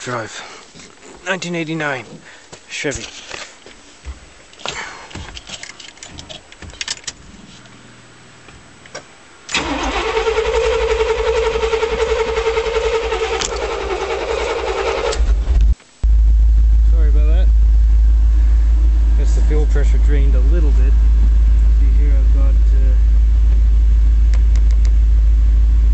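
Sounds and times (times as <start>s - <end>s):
rustling of handling: 0.6s - 7.9s
engine starter cranking: 4.6s - 7.3s, 8.8s - 15.7s.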